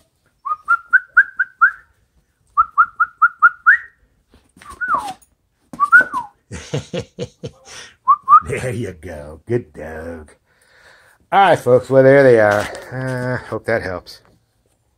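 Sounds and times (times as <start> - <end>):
person whistling chirps: 0.4 - 1.9, 2.6 - 4.0, 4.6 - 5.2, 5.8 - 6.4, 8.0 - 8.5.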